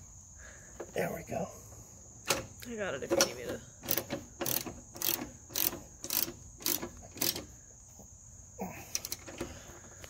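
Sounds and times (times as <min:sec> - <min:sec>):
insects chirring: 0:00.0 - 0:10.0
ratcheting wrench clicking: 0:03.2 - 0:07.5, 0:08.9 - 0:09.5.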